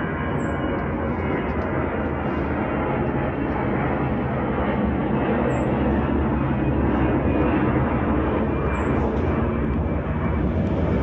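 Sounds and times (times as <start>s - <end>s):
jet airliner flying overhead: 0.0s - 11.0s.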